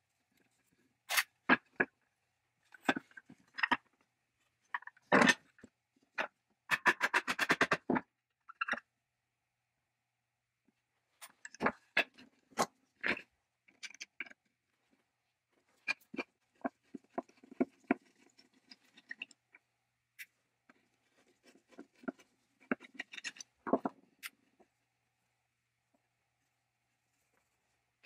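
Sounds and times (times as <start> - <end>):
metal and wood clicks and scrapes: 4.7 - 8.8, 15.7 - 19.5, 20.2 - 24.6.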